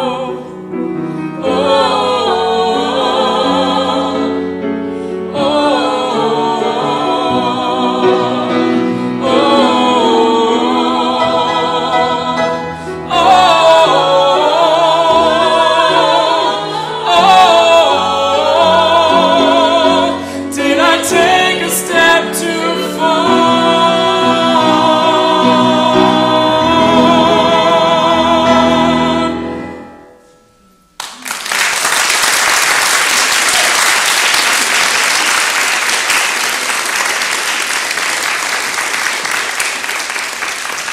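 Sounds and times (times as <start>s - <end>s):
voices singing in harmony: 0.0s - 30.3s
piano: 0.0s - 40.9s
audience applause: 31.0s - 40.9s.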